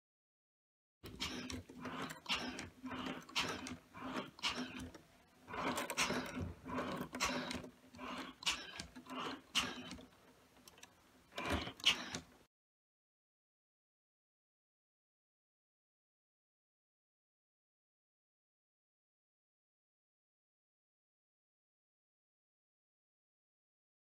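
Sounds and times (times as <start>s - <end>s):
motors humming: 1.0s - 12.4s.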